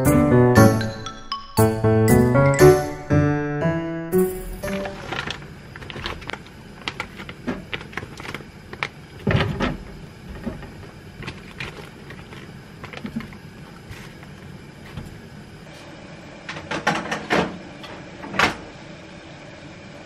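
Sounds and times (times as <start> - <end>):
plastic pouch crinkling: 4.6 - 9.4, 10.8 - 14.4.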